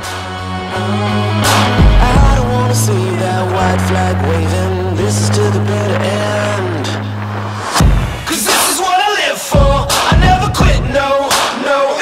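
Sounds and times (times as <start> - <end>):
background music with low bass: 0.0 - 11.6.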